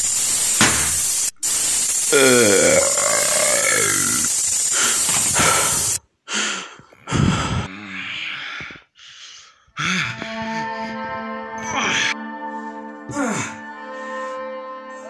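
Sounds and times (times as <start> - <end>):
loud harsh hissing: 0.0 - 6.0
man gasping and groaning: 2.1 - 4.3, 4.9 - 10.8, 13.1 - 13.7.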